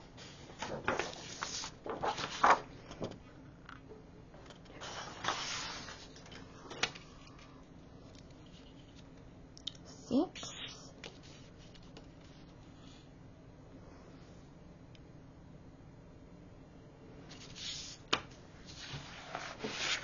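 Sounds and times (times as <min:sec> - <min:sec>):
paper rustling and sliding: 0:00.2 - 0:03.2, 0:04.8 - 0:07.5, 0:17.3 - 0:20.0.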